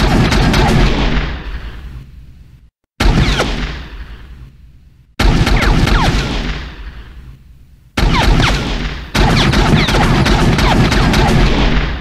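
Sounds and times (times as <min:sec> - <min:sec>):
rapid pistol gunshots: 0:00.0 - 0:01.7, 0:03.0 - 0:04.3, 0:05.2 - 0:07.1, 0:08.0 - 0:12.0.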